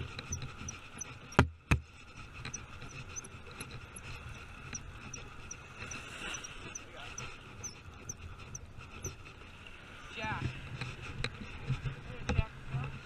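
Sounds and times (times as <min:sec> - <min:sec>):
fishing reel ticking: 0:02.2 - 0:09.2.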